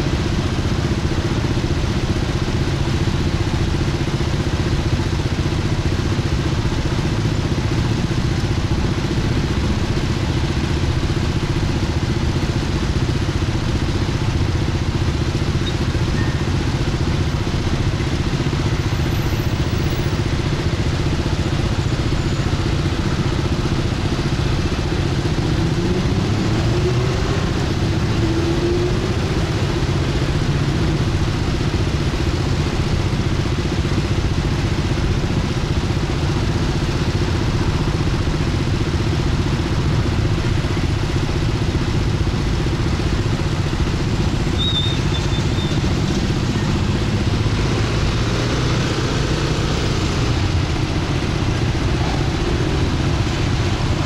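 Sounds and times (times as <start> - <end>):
road noise: 0.0 - 54.0
motorbike engine: 33.8 - 54.0
short high chirps: 44.6 - 45.8.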